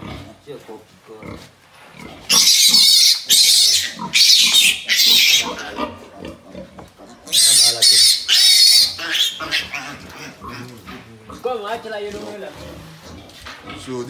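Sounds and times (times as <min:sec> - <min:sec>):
piglets squealing shrilly: 0:02.3 - 0:06.3, 0:07.2 - 0:10.7.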